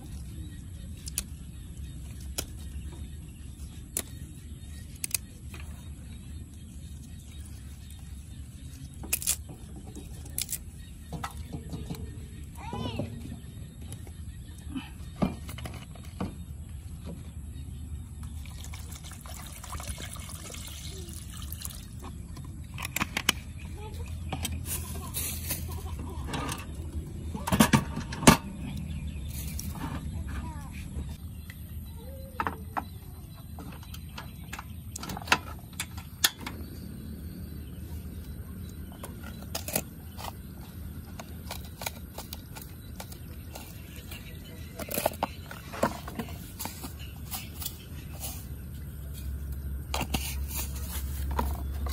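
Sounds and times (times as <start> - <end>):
steady low hum: 13.3 - 51.9
water pouring into a metal pot: 18.4 - 22.0.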